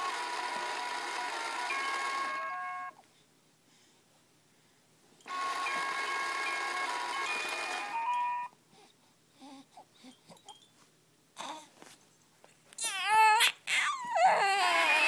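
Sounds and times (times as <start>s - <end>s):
toy beeping electronic tune: 1.6s - 2.9s, 5.3s - 8.5s
infant cooing: 11.4s - 11.7s, 12.8s - 15.0s.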